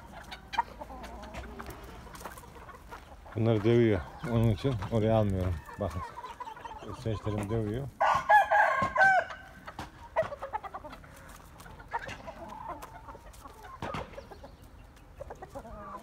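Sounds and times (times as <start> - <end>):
chickens clucking: 0.0 - 16.0
chickens squawking: 0.0 - 16.0.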